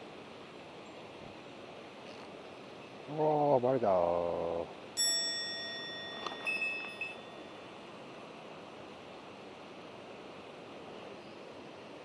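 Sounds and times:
bright ringing chime: 5.0 - 7.6.

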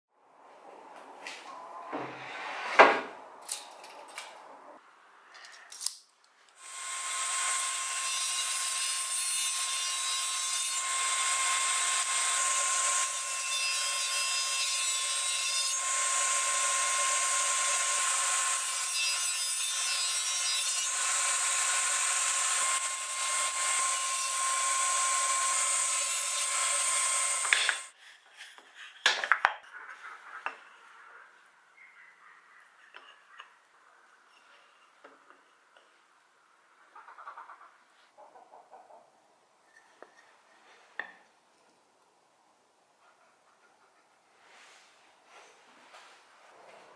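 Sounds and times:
table saw cutting boards: 1.9 - 3.2, 6.6 - 28.0.

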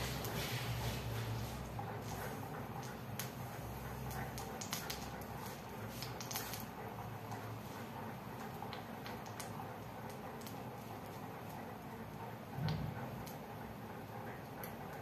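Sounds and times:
matchsticks crackling: 4.0 - 6.7.

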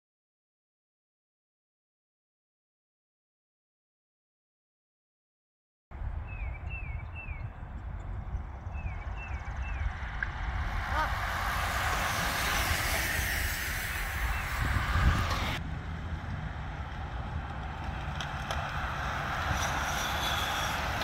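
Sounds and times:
wind buffeting microphone: 5.9 - 21.0
wind rumble: 5.9 - 21.0.

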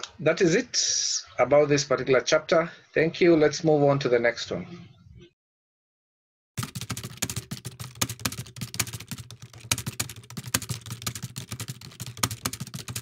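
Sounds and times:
computer keyboard typing: 6.6 - 13.0.

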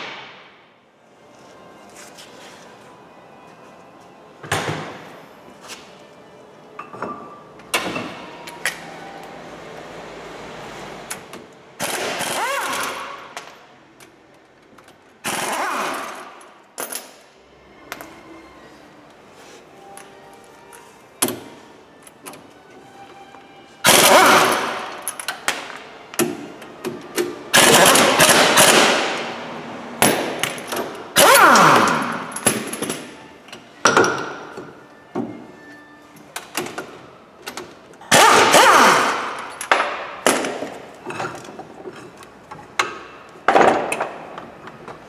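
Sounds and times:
impact wrench hammering: 11.8 - 13.6, 15.2 - 16.3, 27.2 - 29.3, 30.0 - 33.1, 38.1 - 40.8.

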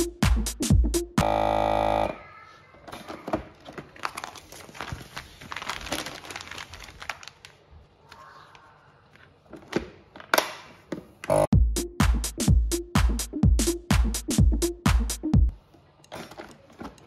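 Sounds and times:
plastic bag crinkling: 3.5 - 8.0.

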